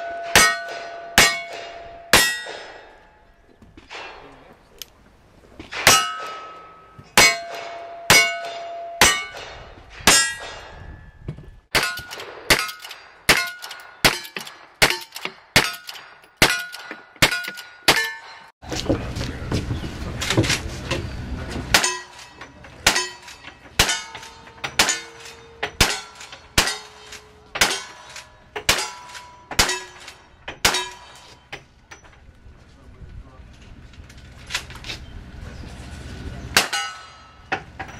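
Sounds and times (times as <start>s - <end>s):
steel target ringing: 0.0s - 4.2s, 5.8s - 18.5s, 21.7s - 31.4s, 36.6s - 37.9s
low rumbling noise: 18.6s - 27.6s, 31.8s - 37.9s.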